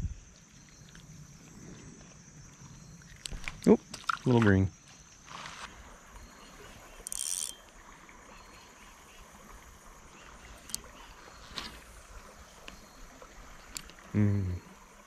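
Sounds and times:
faint water ambience: 0.0s - 15.0s
fishing line hissing off spool: 6.7s - 7.8s
fishing reel clicks: 7.0s - 7.7s.

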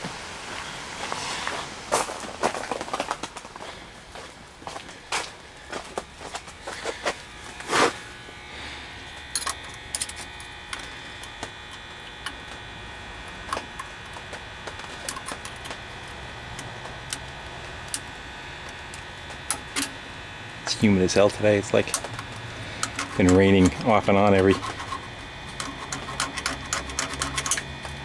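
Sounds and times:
steady hum: 0.0s - 28.0s
small file clicking and scraping: 21.9s - 28.0s.

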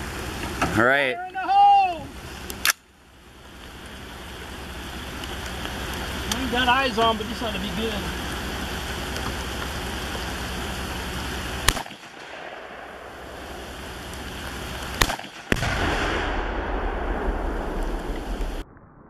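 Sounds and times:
steady background hiss: 0.0s - 18.6s
gunshot cracks: 11.6s - 13.1s, 15.0s - 18.6s
explosion rumbling boom: 15.0s - 19.0s.

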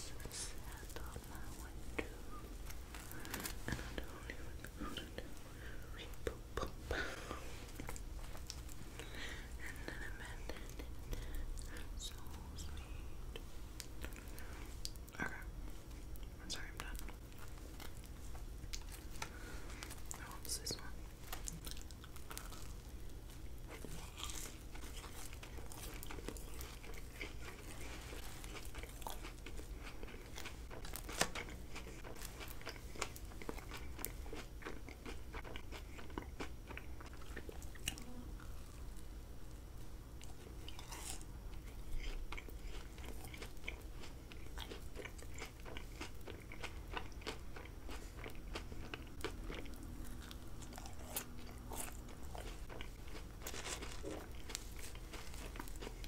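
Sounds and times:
chewing candies: 16.2s - 39.0s, 40.2s - 56.0s.

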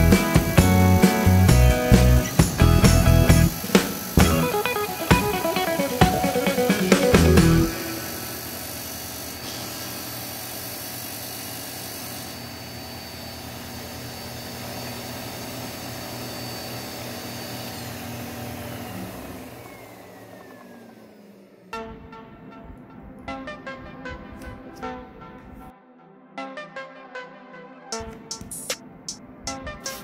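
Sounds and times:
disc sander running: 0.0s - 22.0s.

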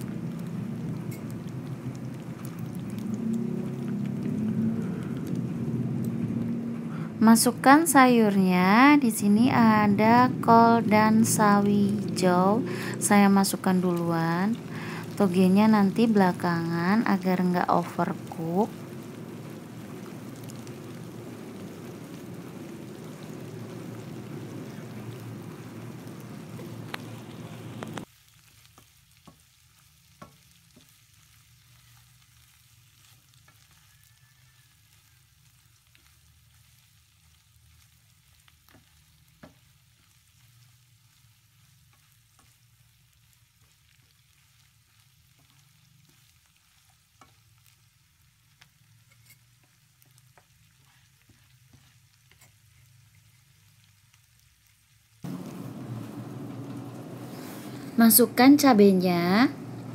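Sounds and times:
vegetables sizzling in hot oil: 0.0s - 59.9s.

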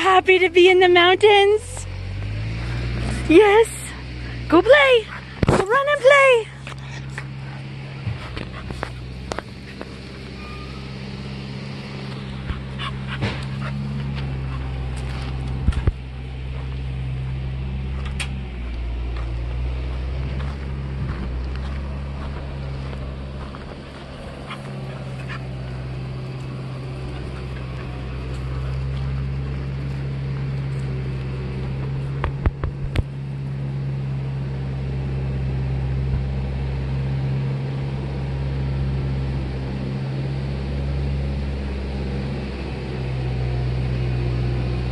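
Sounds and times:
steady low hum: 0.0s - 44.9s
small dogs playing: 1.6s - 17.4s, 20.3s - 32.4s.

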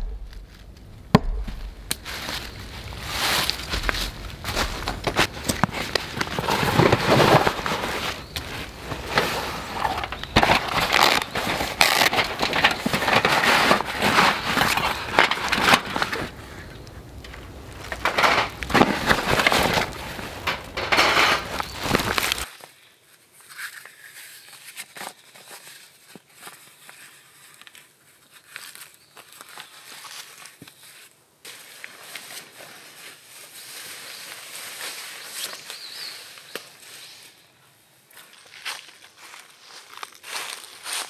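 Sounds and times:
quiet forest ambience: 0.0s - 41.0s
fabric rustling: 2.0s - 22.5s
metal mesh grill being moved: 6.4s - 16.3s, 17.2s - 22.4s.

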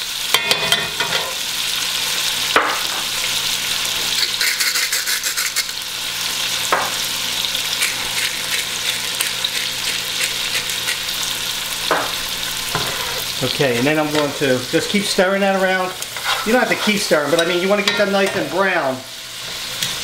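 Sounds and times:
onions sizzling in oil: 0.0s - 20.0s.

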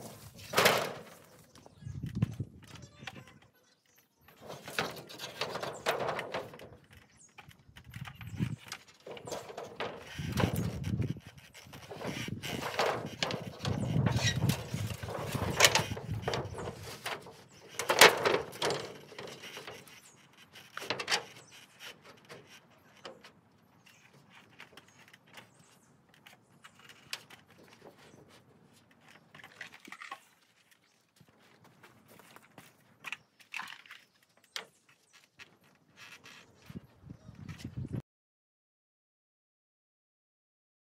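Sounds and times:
roof sheeting scraping and clattering: 0.0s - 29.7s.

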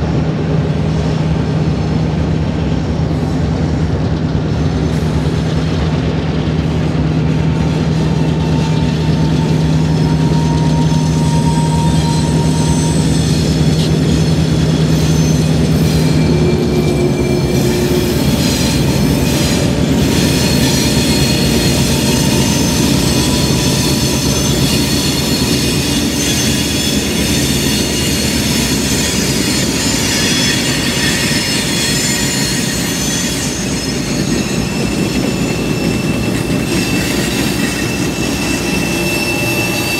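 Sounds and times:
train wheel squeal: 0.0s - 39.9s.

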